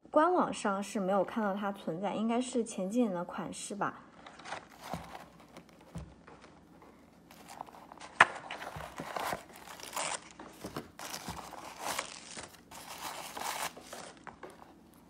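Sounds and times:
tissue paper crinkling: 4.3 - 6.0, 7.2 - 15.0.

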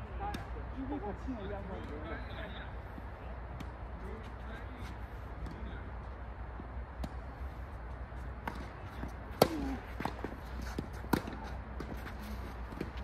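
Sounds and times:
tennis ball struck by racket: 8.4 - 13.0.

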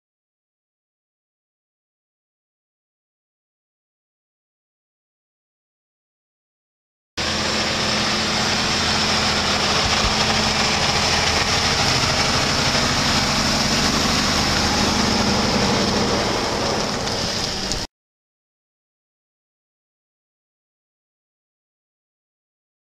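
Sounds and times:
diesel truck running: 7.2 - 17.9.

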